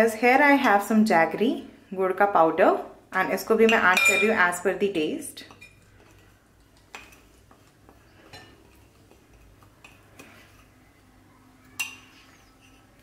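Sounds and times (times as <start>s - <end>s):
metal spoon clinking on glass: 3.7s - 4.4s.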